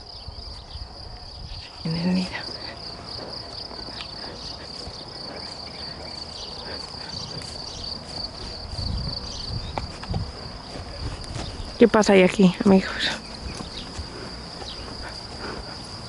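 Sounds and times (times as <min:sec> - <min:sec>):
crickets trilling: 0:00.0 - 0:16.0
soft low thumps: 0:07.8 - 0:15.8.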